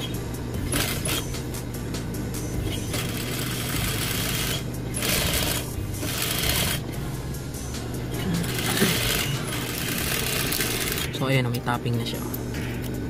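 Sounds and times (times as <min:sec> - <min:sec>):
sewing machine stitching: 0:03.0 - 0:06.8, 0:08.4 - 0:11.1.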